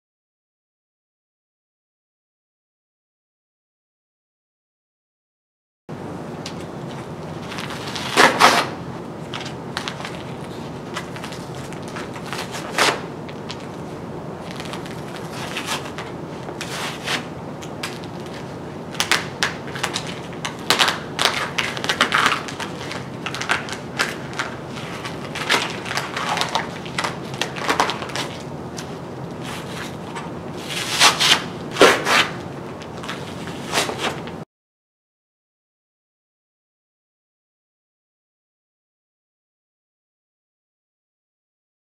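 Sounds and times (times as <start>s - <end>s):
tape rustling and crackling: 6.4s - 34.4s.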